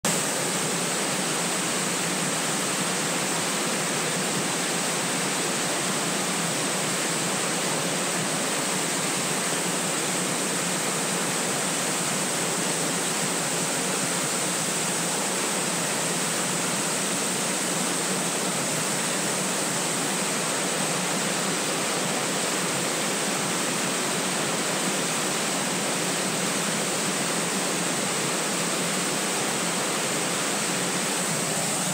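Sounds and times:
waterfall rushing over rocks: 0.1 - 31.9.

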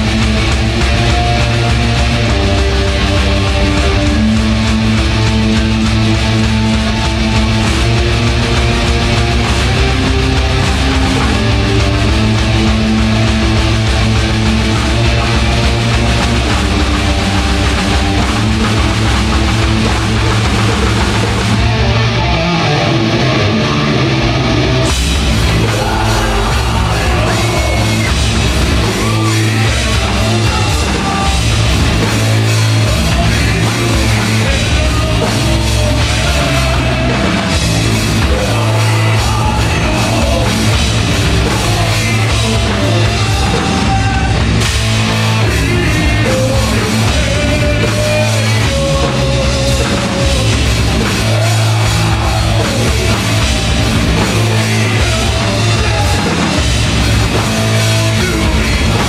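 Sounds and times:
drum kit with cymbals: 0.0 - 22.4, 24.2 - 59.0
distorted electric guitar and bass: 0.0 - 59.0
person yelling vocals: 25.5 - 28.1, 28.7 - 31.4.

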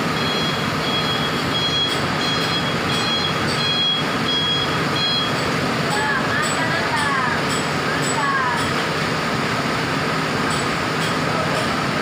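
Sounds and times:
diesel engine idling: 0.0 - 12.0
high electronic beeps: 0.2 - 5.5.

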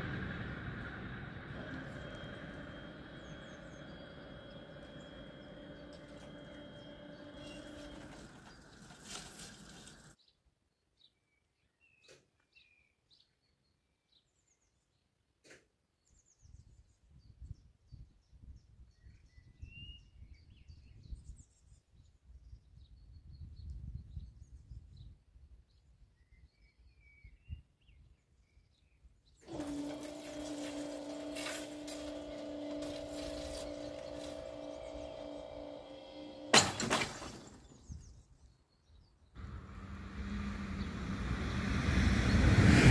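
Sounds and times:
gusty wind rumble: 0.0 - 7.0, 39.4 - 42.9
barrier drives humming: 0.0 - 10.1, 29.5 - 38.2, 39.4 - 42.9
birds chirping: 0.0 - 10.3, 29.3 - 36.5.

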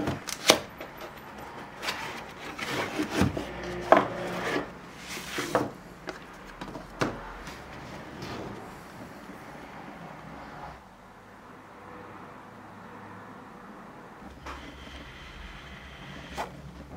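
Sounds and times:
cardboard rubbing and scraping: 1.7 - 8.7, 14.4 - 16.9.

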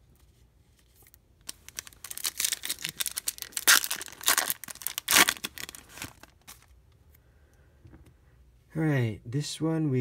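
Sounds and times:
foil wrapper crinkling: 1.0 - 6.7
foil wrapper ripping: 1.4 - 6.7.

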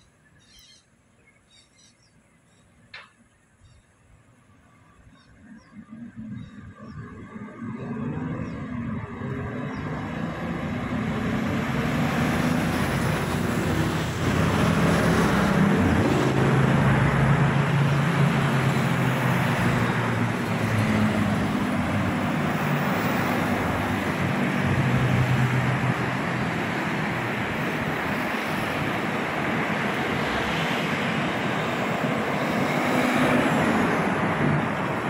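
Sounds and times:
vehicle engines droning: 4.8 - 35.0
tyres hissing on wet road: 10.1 - 35.0.

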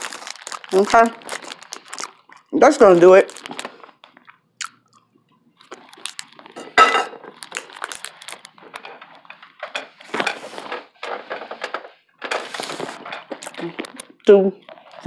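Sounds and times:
dishes and cutlery clinking: 6.6 - 7.3.

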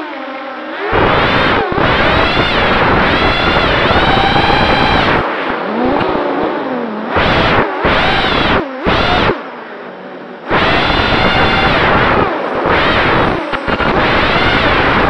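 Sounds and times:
drone motors whining: 0.0 - 15.0.

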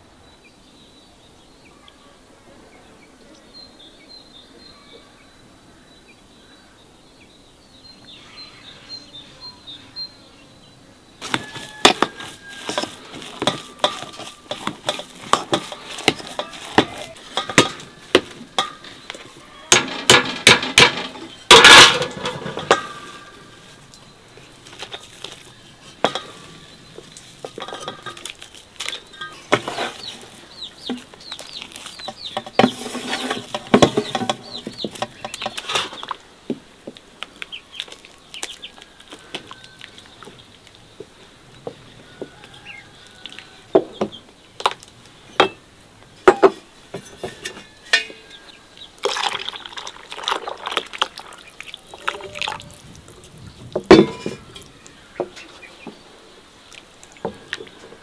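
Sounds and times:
spoon stirring wet mash: 11.2 - 36.2, 49.0 - 56.0
milk pouring into basin: 49.0 - 52.9.

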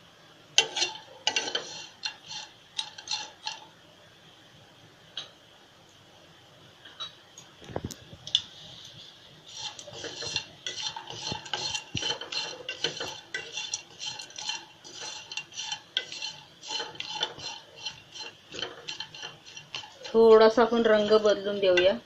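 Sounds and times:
spatula scraping pan: 0.6 - 3.7, 8.3 - 22.0.

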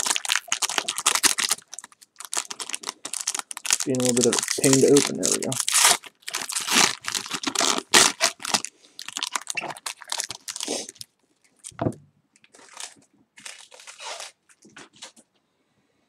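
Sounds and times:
foil wrapper crinkling: 0.0 - 11.8, 12.4 - 15.2
soft thump: 11.8 - 12.1.

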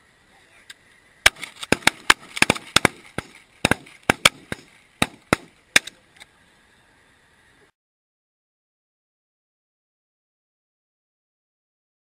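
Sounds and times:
shotgun fire: 1.2 - 5.9.

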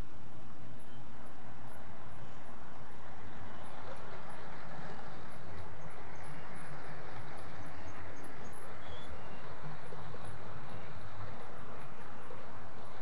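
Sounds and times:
model trains rumbling on track: 0.0 - 13.0.

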